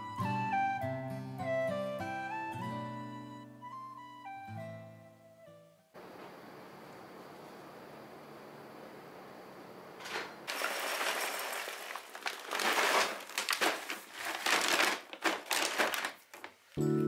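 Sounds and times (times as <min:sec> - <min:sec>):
bag crinkling and rustling: 0:10.1 - 0:16.8
kibble pouring into glass jar: 0:10.5 - 0:16.2.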